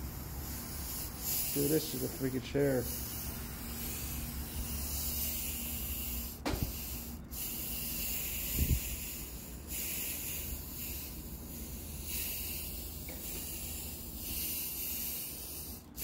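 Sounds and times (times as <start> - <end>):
steady hiss: 0.0 - 16.0
dull thump: 6.4 - 6.7.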